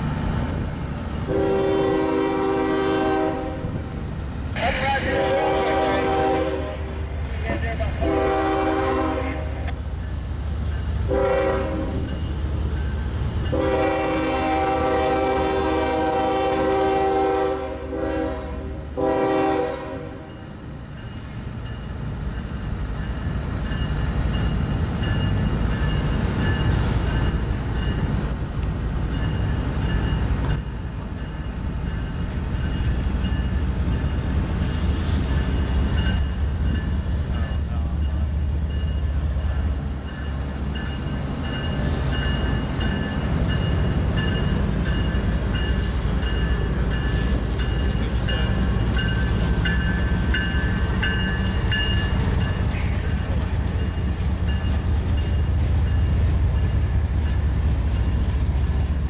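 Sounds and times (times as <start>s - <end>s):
diesel locomotive engines droning: 0.0s - 59.0s
crossing warning bell ringing: 10.0s - 15.1s, 20.2s - 28.3s, 29.0s - 34.5s, 35.3s - 58.3s.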